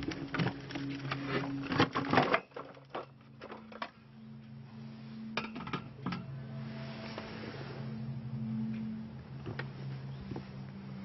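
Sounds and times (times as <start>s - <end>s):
steady low hum: 3.0s - 11.0s.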